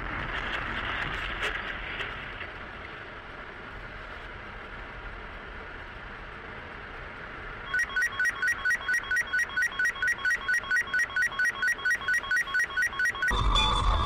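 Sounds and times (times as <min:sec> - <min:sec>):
rapid two-pitch electronic beeping: 0:07.7 - 0:14.0
car road noise: 0:09.9 - 0:14.0.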